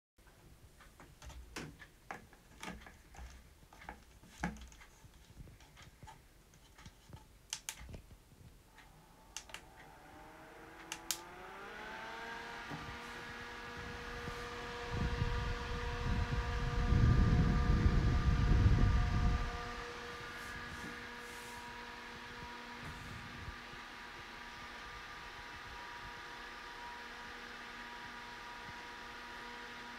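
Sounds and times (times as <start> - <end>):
desk fan being handled: 0.8 - 8.2, 10.8 - 15.9
fan motor whine: 7.5 - 29.9
airflow rumbling on microphone: 12.6 - 24.4
rush of air: 12.8 - 23.8.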